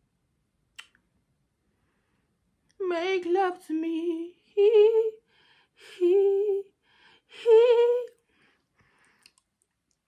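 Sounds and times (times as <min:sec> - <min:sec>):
faint small clicks: 0:00.7 - 0:01.1, 0:08.0 - 0:10.0.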